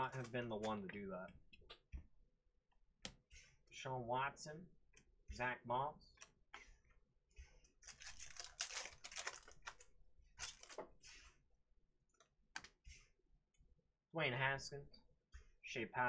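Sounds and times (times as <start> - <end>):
cards clicking: 0.0 - 0.8, 7.8 - 9.8
wrapper crinkling and tearing: 7.8 - 10.8.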